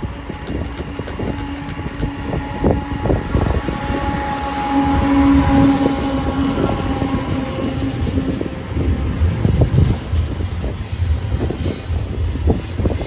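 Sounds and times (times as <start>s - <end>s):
train wheels knocking: 0.0s - 3.0s
diesel locomotive passing: 0.0s - 13.0s.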